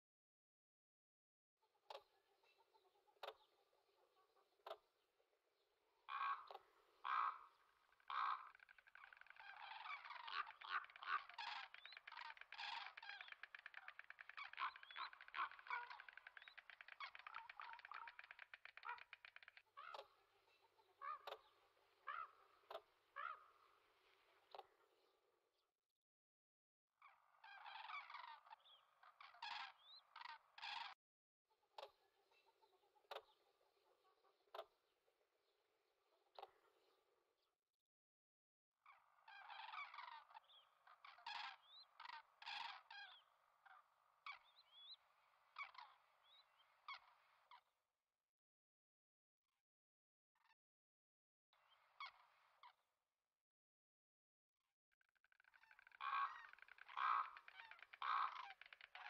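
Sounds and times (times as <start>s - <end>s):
cranes calling: 6.1s - 7.5s, 8.1s - 20.0s, 22.1s - 22.4s, 55.6s - 59.0s.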